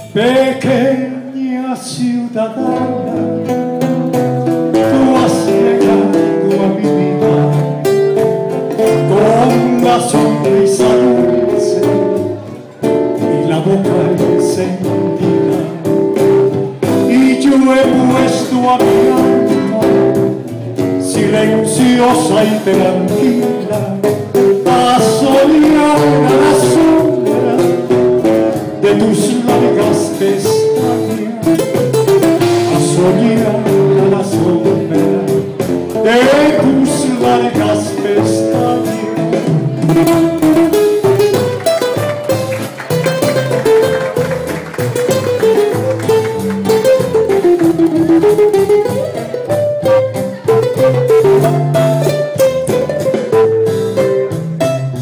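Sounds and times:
man singing into a microphone: 0:00.0 - 0:03.5, 0:04.7 - 0:40.6
acoustic guitars: 0:00.0 - 0:55.0.

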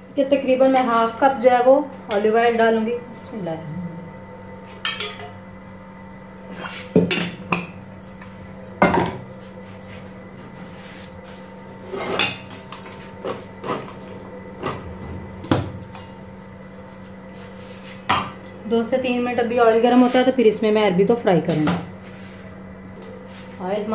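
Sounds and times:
steady low hum: 0:00.0 - 0:23.9.

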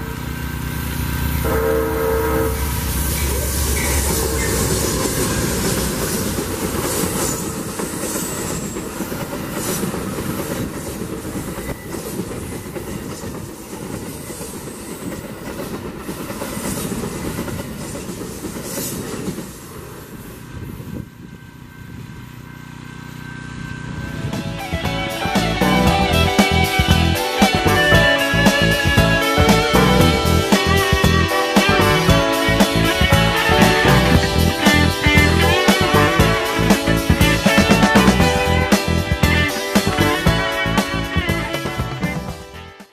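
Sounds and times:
train passing with rolling rumble: 0:00.0 - 0:42.9
wheels clicking over rail joints: 0:02.6 - 0:20.2.

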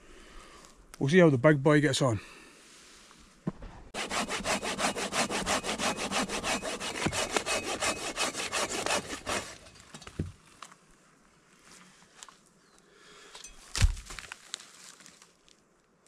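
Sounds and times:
hand saw cutting log: 0:04.0 - 0:09.8.

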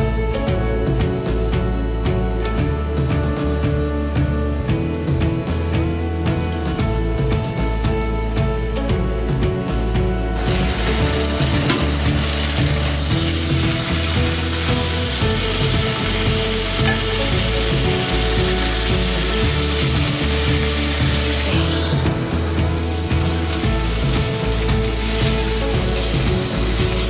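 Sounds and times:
background music: 0:00.0 - 0:27.0
meat sizzling in hot oil: 0:10.4 - 0:27.0.

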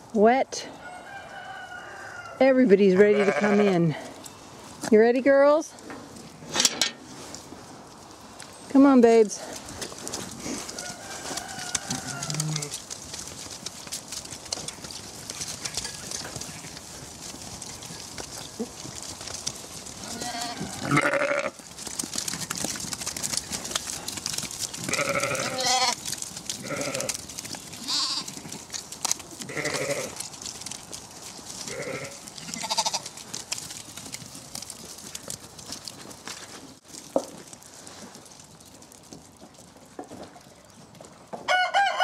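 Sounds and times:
steady background rustle: 0:02.4 - 0:41.4
sheep bleating: 0:03.0 - 0:04.0, 0:11.6 - 0:12.8, 0:20.0 - 0:21.6, 0:24.9 - 0:26.0, 0:26.6 - 0:27.2, 0:27.8 - 0:28.3, 0:29.5 - 0:30.2, 0:31.7 - 0:33.1.

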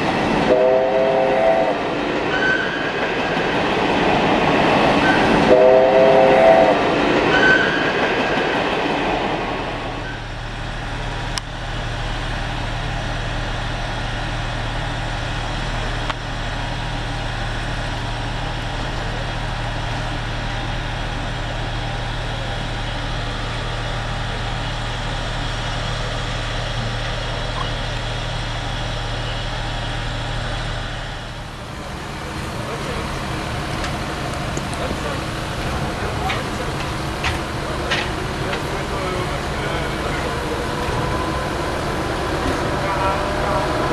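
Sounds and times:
steam locomotive low hum: 0:00.0 - 0:43.9
steam train passing: 0:00.0 - 0:43.9
train whistle blast: 0:00.5 - 0:02.8, 0:05.0 - 0:07.8.

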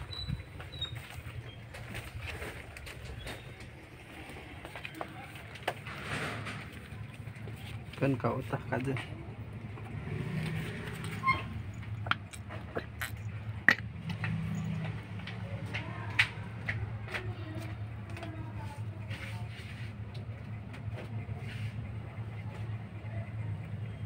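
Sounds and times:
kitten heaving and vomiting: 0:12.0 - 0:14.1.

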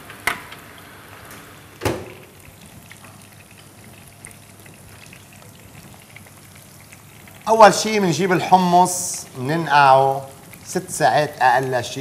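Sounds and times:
pan sizzling: 0:00.0 - 0:12.0
oven door clanking shut: 0:01.3 - 0:02.4.

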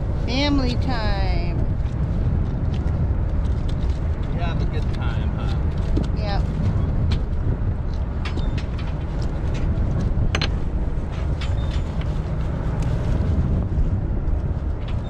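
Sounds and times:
low rumble: 0:00.0 - 0:15.0
short squeak: 0:11.5 - 0:11.9.

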